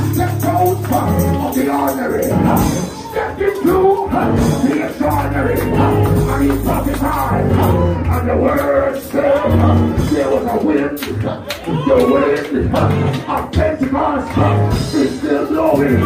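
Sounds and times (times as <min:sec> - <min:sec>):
bass line: 0:00.0 - 0:03.1, 0:03.7 - 0:10.6
person singing into a microphone: 0:00.0 - 0:16.0.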